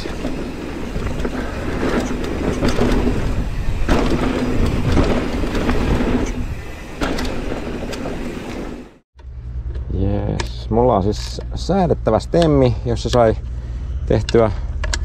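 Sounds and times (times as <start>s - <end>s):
bike rattling over bumps: 0.0s - 9.0s
bike tyres on loose gravel: 0.0s - 9.0s.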